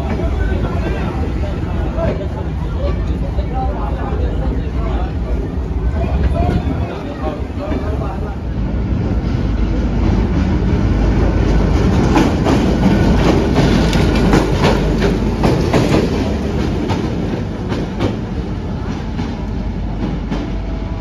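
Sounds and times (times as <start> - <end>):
locomotive engine rumble: 0.0 - 21.0
wheels clicking over rail joints: 9.1 - 20.6.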